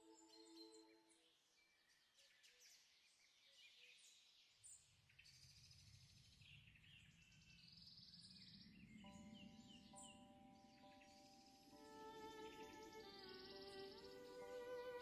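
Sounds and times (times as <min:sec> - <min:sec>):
birds chirping and trilling: 0:00.0 - 0:15.0.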